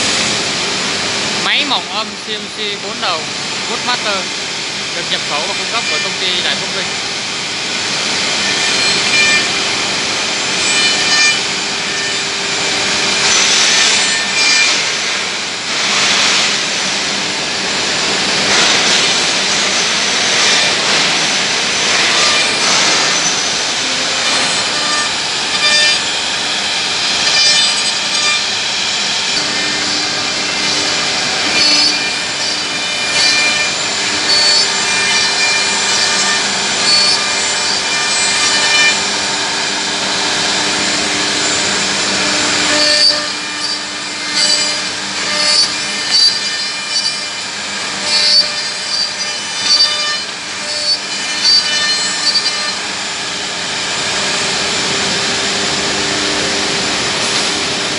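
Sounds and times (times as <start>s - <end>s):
machine running: 0.0s - 57.9s
router cutting wood: 0.0s - 57.9s.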